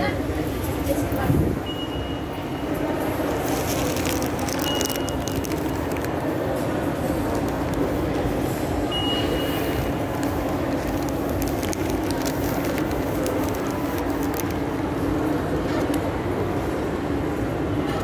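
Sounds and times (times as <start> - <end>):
short high-pitched beep: 1.6 - 2.7, 8.9 - 9.7
rushing noise with low hum: 2.8 - 17.9.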